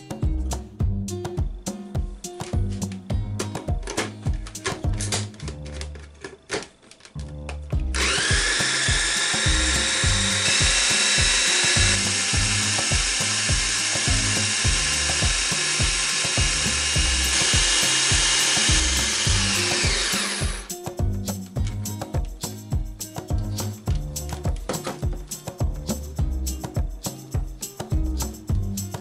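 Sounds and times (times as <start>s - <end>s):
blender motor whining: 7.9s - 20.7s.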